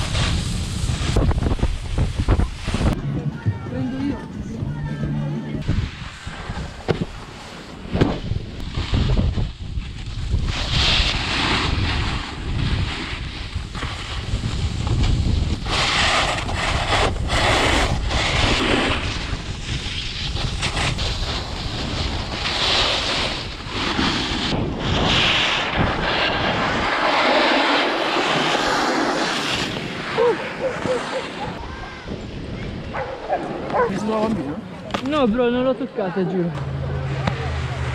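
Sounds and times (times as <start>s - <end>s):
snowboard edge scraping snow: 0.0s - 3.5s, 4.7s - 31.9s
wind buffeting microphone: 0.0s - 7.2s, 29.6s - 35.2s.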